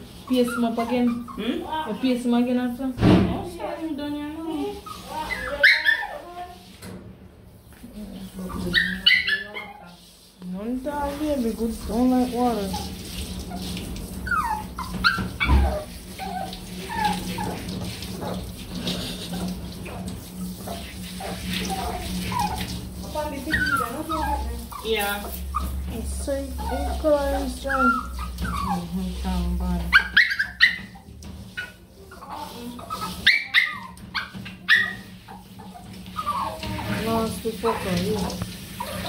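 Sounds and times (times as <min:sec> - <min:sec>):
water from sprayer running: 0:00.0 - 0:39.0
small dog whimpering: 0:00.3 - 0:02.0, 0:04.6 - 0:06.3, 0:08.4 - 0:09.9, 0:14.3 - 0:17.6, 0:20.7 - 0:22.8, 0:23.5 - 0:25.8, 0:26.5 - 0:29.0, 0:29.8 - 0:31.0, 0:31.6 - 0:37.0, 0:38.8 - 0:39.0.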